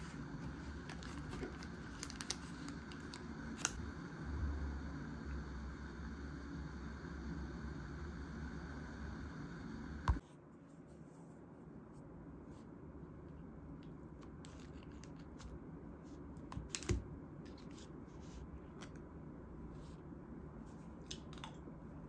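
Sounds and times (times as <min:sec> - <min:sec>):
plastic food packaging rustling: 0:00.0 - 0:03.8.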